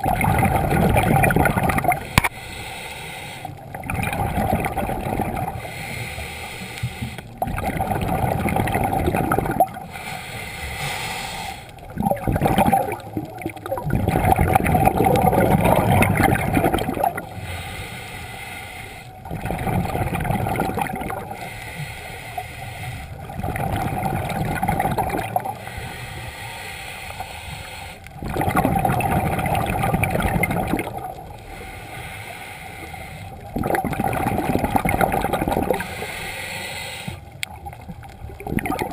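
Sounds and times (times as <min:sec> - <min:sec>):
exhaled bubbles gurgling: 0:00.0 - 0:18.0, 0:18.8 - 0:26.3, 0:27.6 - 0:38.9
diver breathing through regulator: 0:02.0 - 0:04.0, 0:05.4 - 0:13.1, 0:16.6 - 0:19.9, 0:20.6 - 0:28.4, 0:30.4 - 0:37.4.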